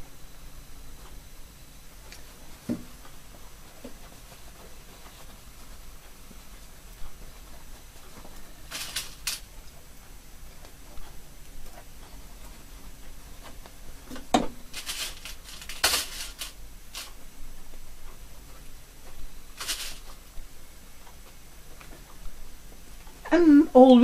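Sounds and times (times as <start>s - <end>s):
cloth rustling: 14.6s - 17.2s, 19.5s - 20.3s.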